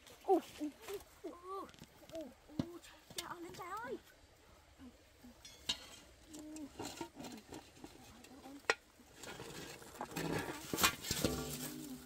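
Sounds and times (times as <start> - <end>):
metal pan scraping: 5.4 - 12.0.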